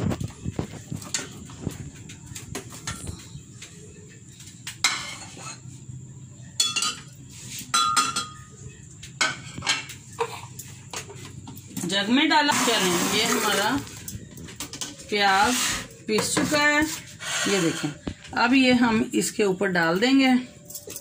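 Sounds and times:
glass and kitchenware clinking: 6.6s - 8.5s.

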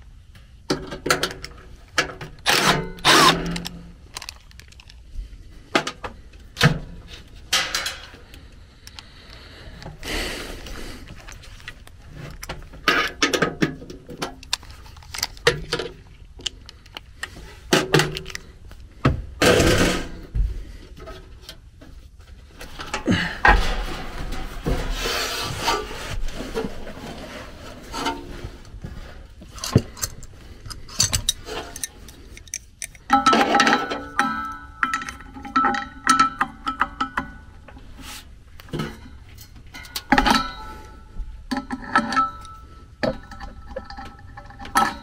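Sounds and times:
metal clicks and knocks: 0.7s - 5.0s, 11.3s - 18.5s, 29.4s - 37.7s
rummaging in a tool bag: 22.5s - 35.8s.

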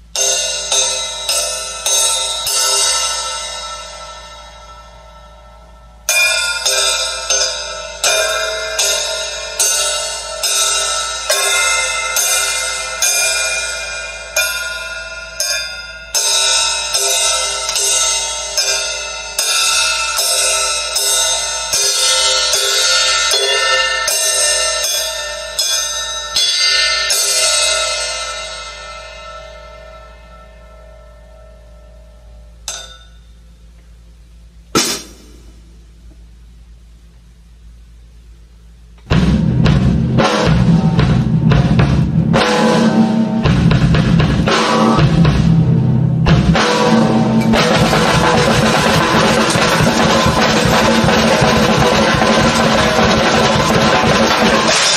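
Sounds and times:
cymbal hits ringing: 0.0s - 33.8s, 39.1s - 54.9s
drum hits: 34.7s - 35.7s, 39.0s - 54.9s.

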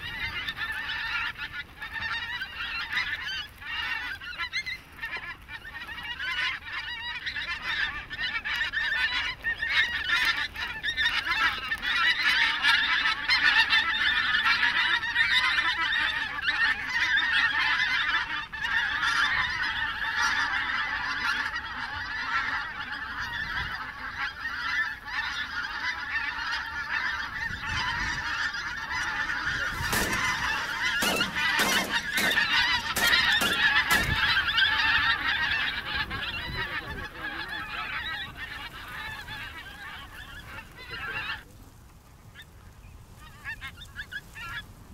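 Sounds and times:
geese honking: 0.0s - 41.5s, 43.2s - 44.7s
sharp knocks: 29.9s - 34.3s.

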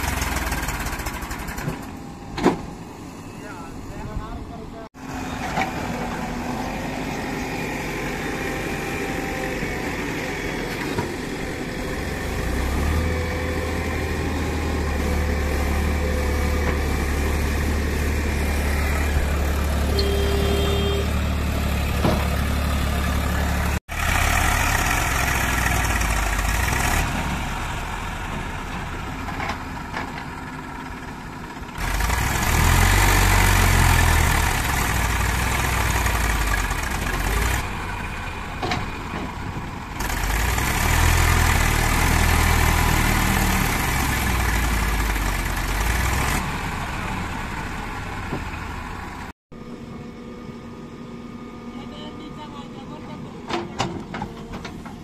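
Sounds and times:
tractor engine revving: 0.0s - 2.0s, 5.0s - 49.3s
backhoe loader engine running: 0.0s - 3.2s, 5.0s - 55.0s.

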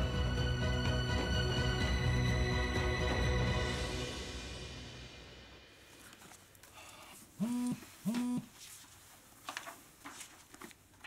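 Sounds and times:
paper rustling: 5.9s - 11.0s
mobile phone vibrating: 7.4s - 8.5s.

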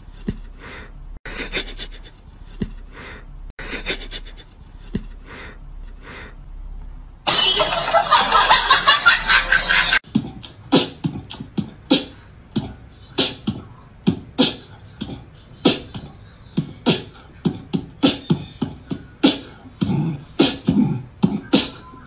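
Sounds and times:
sharp percussive hits: 7.3s - 10.0s.

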